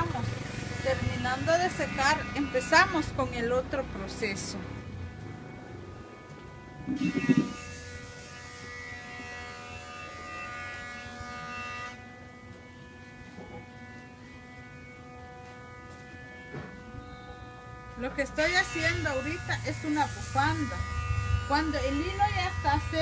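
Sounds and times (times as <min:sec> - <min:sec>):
electrical buzzing hum: 0:00.0 - 0:23.0.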